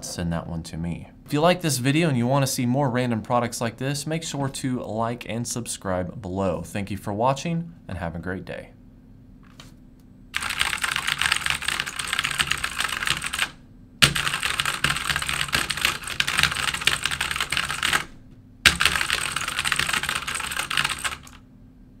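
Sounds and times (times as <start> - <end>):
fast typing on mechanical keyboard: 10.4 - 18.1, 18.7 - 21.4.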